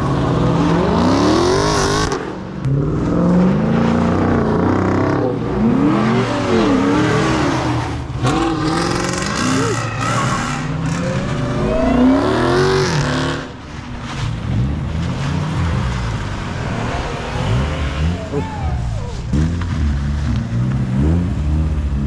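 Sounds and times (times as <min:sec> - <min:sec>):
car engines revving hard: 0:00.0 - 0:22.0
tires squealing: 0:03.0 - 0:21.5.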